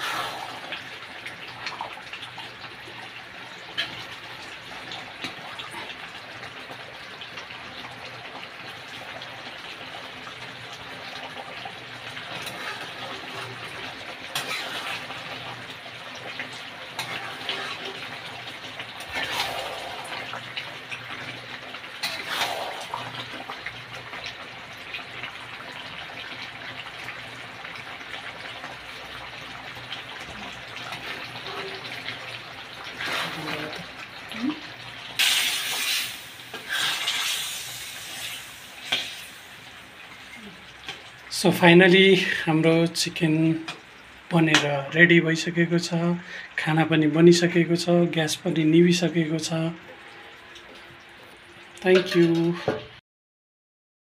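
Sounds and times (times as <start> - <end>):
curry bubbling and sizzling: 0.0 - 53.0
pops and spatters: 14.3 - 15.1.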